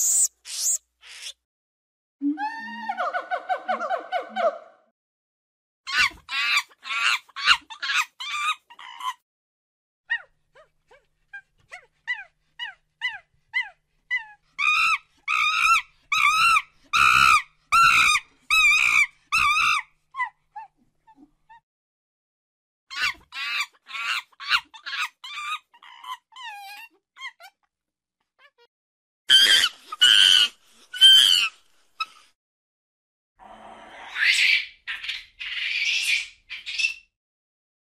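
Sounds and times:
monkey high-pitched calls: 0:00.0 - 0:01.4, 0:05.9 - 0:09.2, 0:11.7 - 0:20.7, 0:22.9 - 0:27.6, 0:29.3 - 0:32.2.

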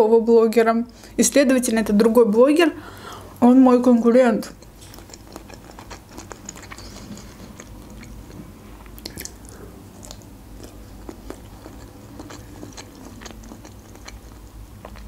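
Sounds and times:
wet chewing with clicks: 0:04.5 - 0:15.0.

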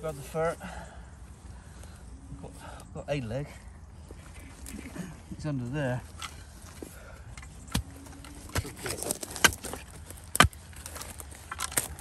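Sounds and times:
undergrowth rustling: 0:00.0 - 0:12.0
spade chopping into soil: 0:07.7 - 0:10.6.

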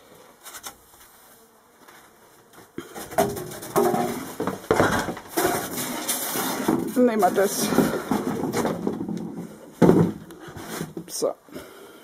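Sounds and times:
objects knocking and scraping: 0:02.9 - 0:11.2
board pulled out: 0:03.0 - 0:11.1.

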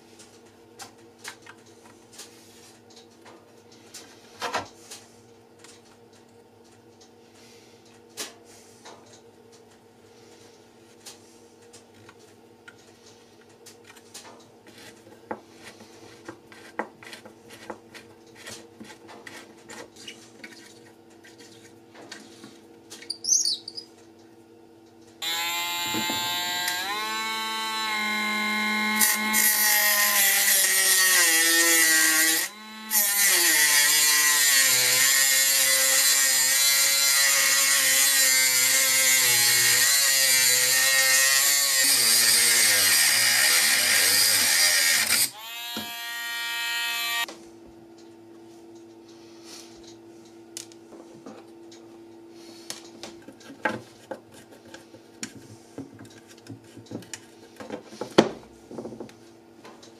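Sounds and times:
rotary tool whining: 0:25.2 - 0:47.3.

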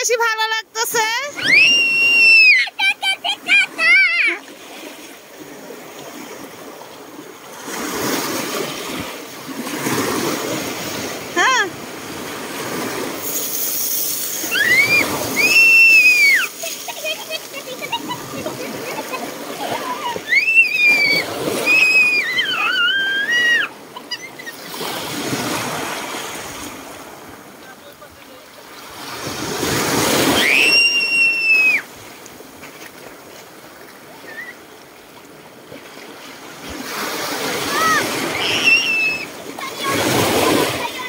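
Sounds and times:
wavering whistle-like call: 0:01.4 - 0:02.6, 0:14.3 - 0:16.5, 0:20.3 - 0:23.7, 0:30.3 - 0:31.9, 0:34.2 - 0:34.6, 0:38.3 - 0:39.3
waves washing over pebbles: 0:01.4 - 0:41.0.

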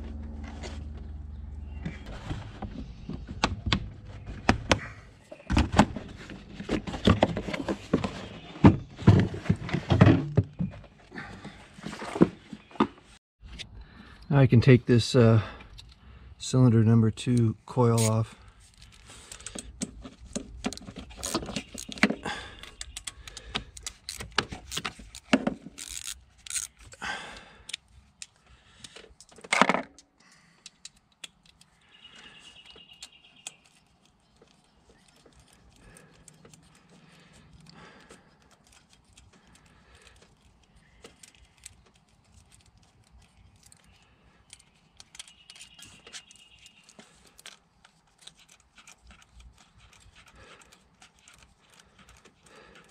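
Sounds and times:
faint handling noises: 0:17.2 - 0:52.9.

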